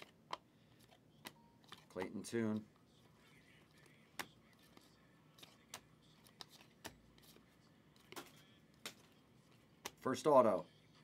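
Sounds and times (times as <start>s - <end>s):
trading cards flicked by hand: 8.0s - 9.2s, 9.8s - 10.1s.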